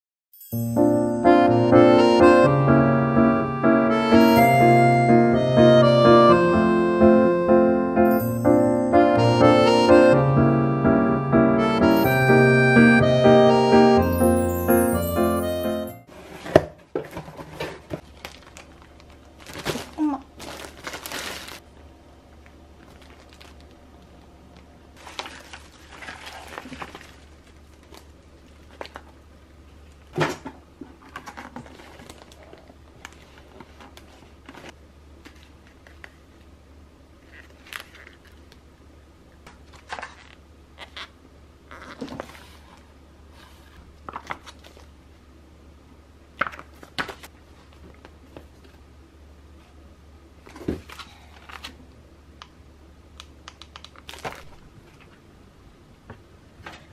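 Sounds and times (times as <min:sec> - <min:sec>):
plastic bags crinkling: 0:18.0 - 0:21.7, 0:22.7 - 0:24.2, 0:25.0 - 0:29.2, 0:31.2 - 0:34.1.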